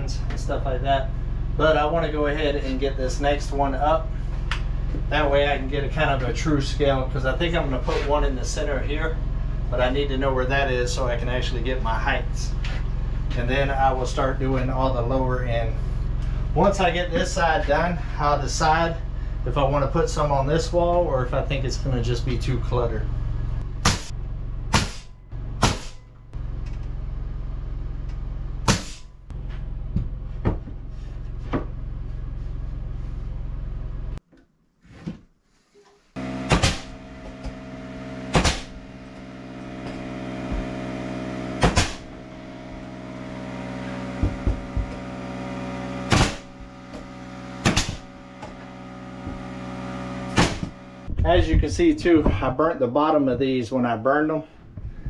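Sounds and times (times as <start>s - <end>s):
steady hum: 0.0s - 34.2s, 36.2s - 52.6s
nail gun firing: 36.5s - 36.9s, 46.1s - 46.5s, 47.6s - 48.0s.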